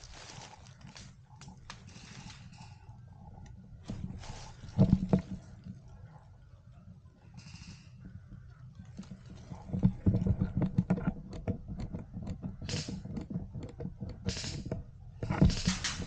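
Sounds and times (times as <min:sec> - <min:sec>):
rustling of leafy undergrowth: 0:00.0 - 0:06.1
airsoft rifle clicks and knocks: 0:03.4 - 0:05.4, 0:08.9 - 0:16.0.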